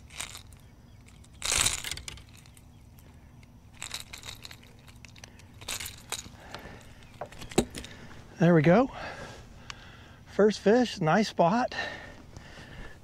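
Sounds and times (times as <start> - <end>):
rustling and rattling handling noise: 0.0 - 8.3.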